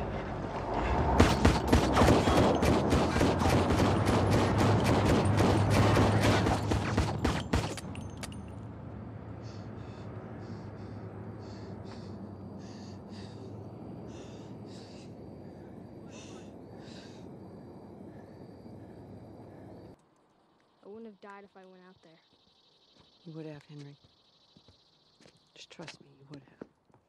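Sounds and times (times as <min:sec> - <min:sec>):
rapid gunfire: 0:01.2 - 0:07.8.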